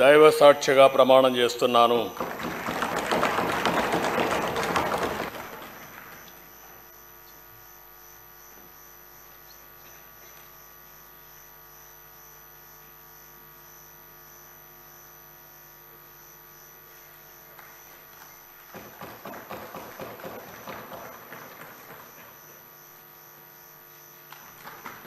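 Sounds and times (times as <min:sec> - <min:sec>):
electrical mains hum: 0:00.0 - 0:25.0
faint high pulsing whine: 0:05.3 - 0:25.0.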